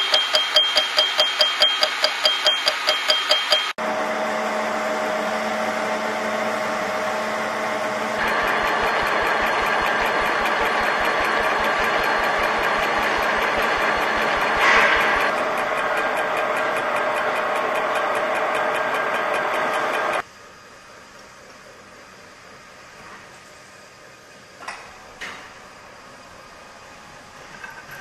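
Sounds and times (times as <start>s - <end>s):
milling cutter chattering on metal: 0.0s - 3.8s, 8.2s - 20.2s.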